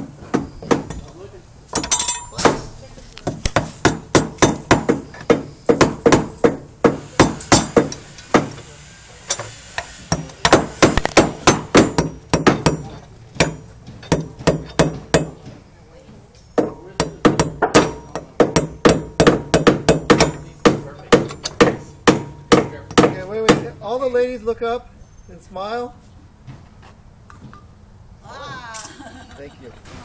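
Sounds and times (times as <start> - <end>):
hammers striking nails: 0.2 - 1.1, 1.7 - 8.6, 10.1 - 15.6, 16.6 - 23.8.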